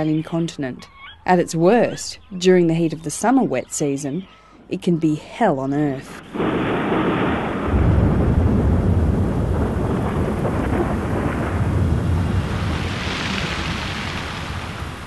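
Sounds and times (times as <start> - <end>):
steady rain: 6.2 - 15.0
thunder rumbling: 6.2 - 15.0.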